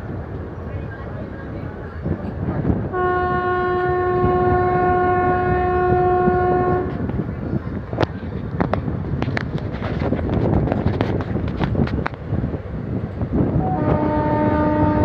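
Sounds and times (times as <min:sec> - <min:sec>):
train wheels rumbling on rails: 0:00.0 - 0:15.0
train horn blast: 0:02.9 - 0:07.0, 0:13.6 - 0:15.0.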